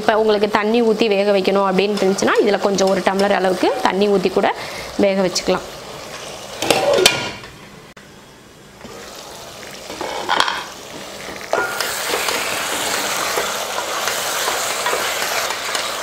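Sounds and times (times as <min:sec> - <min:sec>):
curry sizzling and bubbling in a pot: 0:08.7 - 0:16.0.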